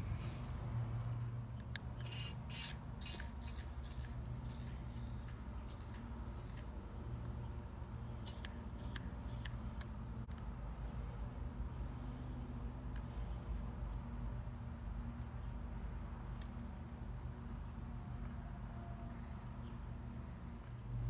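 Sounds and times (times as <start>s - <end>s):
aerosol can spraying: 2.0s - 6.7s, 8.2s - 9.7s.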